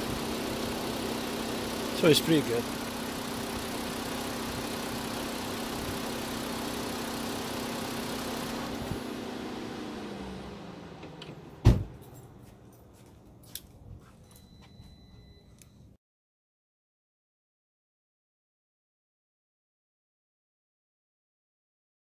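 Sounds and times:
car engine idling and stopping: 0.0 - 12.8.

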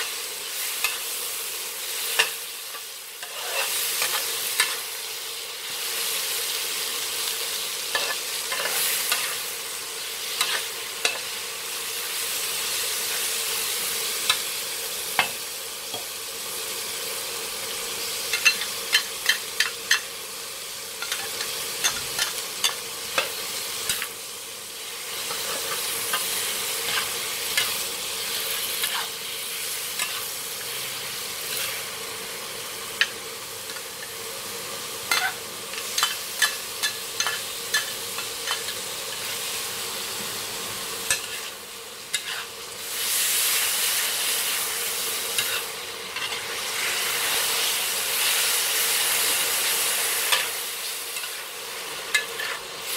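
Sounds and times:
chicken sizzling in hot oil: 0.0 - 52.9
metal spatula scraping a wok: 2.0 - 4.9, 7.9 - 9.4, 10.2 - 11.4, 25.1 - 31.9, 41.1 - 43.2, 45.3 - 48.5, 52.1 - 52.9.

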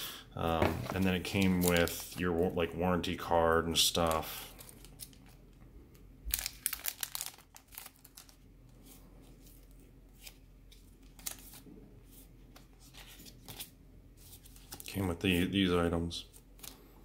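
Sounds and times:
paper and packaging crinkling: 0.8 - 2.7, 3.7 - 5.6, 6.3 - 15.6.

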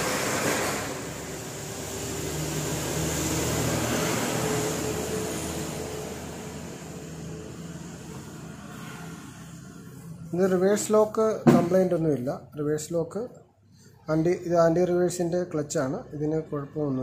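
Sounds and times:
vehicle engine humming past: 0.0 - 11.0.

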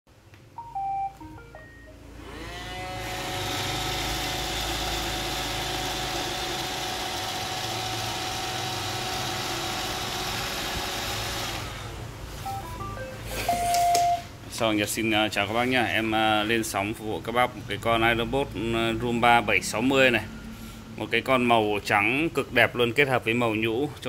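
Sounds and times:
electronic beeps: 0.6 - 2.0, 12.4 - 14.3
robot vacuum motors whirring: 2.2 - 12.0.

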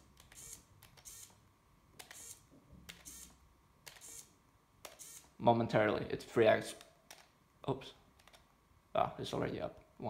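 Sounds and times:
small servo whirring: 0.3 - 1.4, 2.0 - 4.3, 4.9 - 5.3.

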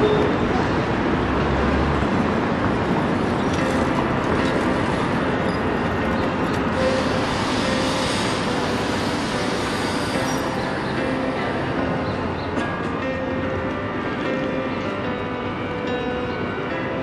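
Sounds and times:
traffic-like rumble and hiss: 0.0 - 13.2.

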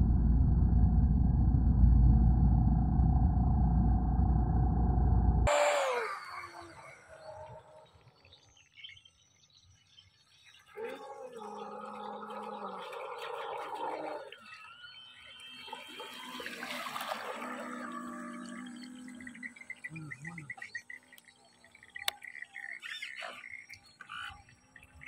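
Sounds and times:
model boat motor running: 5.5 - 7.2, 11.7 - 25.0
water churning: 10.7 - 22.4.

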